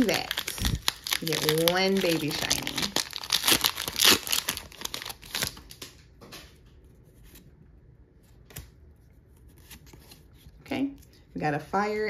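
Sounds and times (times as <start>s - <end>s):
cards rustling: 0.0s - 5.8s
foil wrapper crinkling: 0.0s - 6.0s.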